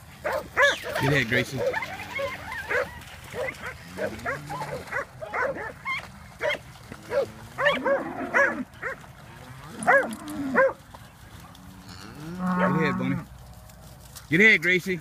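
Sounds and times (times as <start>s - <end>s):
dogs barking: 0.2s - 9.1s, 9.8s - 10.8s, 12.4s - 13.0s.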